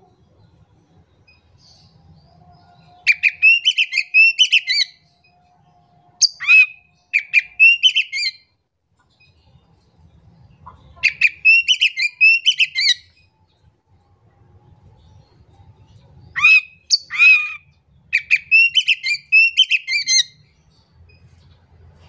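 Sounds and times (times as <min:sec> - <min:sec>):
bird singing varied notes: 0:01.2 - 0:05.5, 0:06.2 - 0:08.6, 0:11.0 - 0:13.3, 0:16.3 - 0:21.4.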